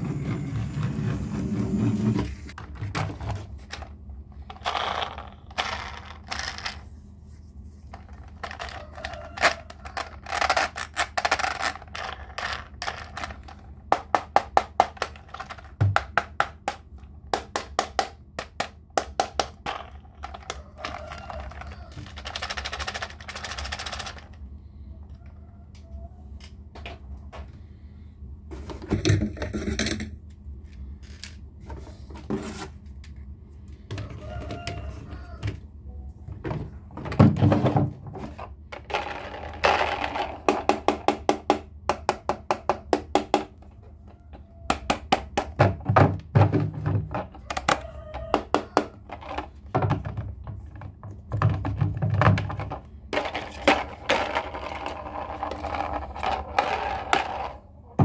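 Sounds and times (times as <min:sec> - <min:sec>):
toy trains clattering: 0:03.6 - 0:06.9, 0:07.9 - 0:14.1, 0:19.6 - 0:24.5, 0:53.2 - 0:57.6.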